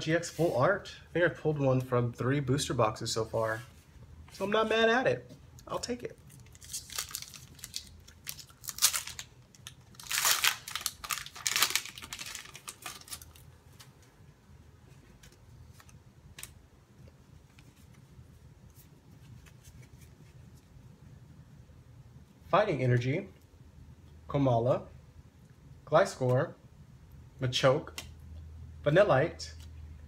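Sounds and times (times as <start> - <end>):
foil pack tearing and crinkling: 6.4 - 13.4.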